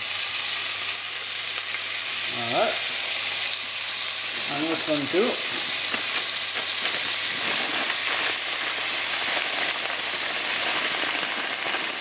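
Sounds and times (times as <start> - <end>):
vegetables sizzling in oil: 0.0 - 12.0
peas poured into pan: 4.3 - 12.0.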